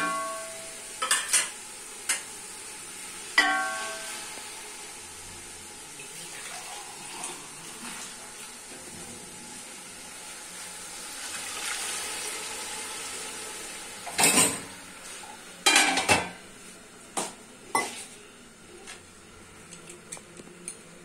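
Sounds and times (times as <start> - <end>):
pots and utensils clanking: 0.0 - 2.4, 3.3 - 4.5, 14.0 - 14.8, 15.6 - 16.4, 17.2 - 18.1.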